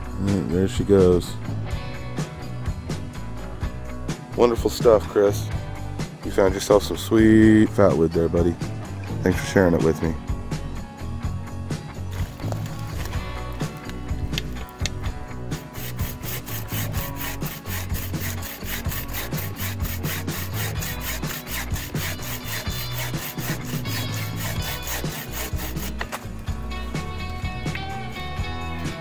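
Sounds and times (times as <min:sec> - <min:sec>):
background music: 0:00.0 - 0:29.0
saw cutting through branch: 0:15.6 - 0:26.2.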